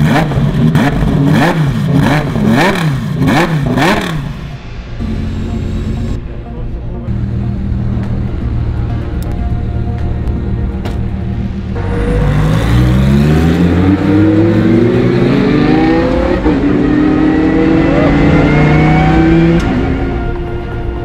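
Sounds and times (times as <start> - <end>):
race car engine at full throttle: 0.0 - 21.0.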